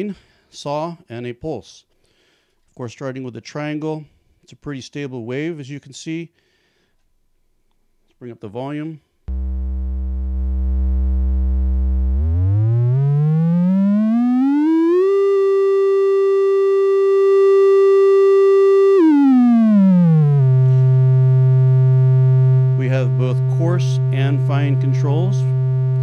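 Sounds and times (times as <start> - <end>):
synthesizer tone gliding in pitch: 9.3 - 26.0.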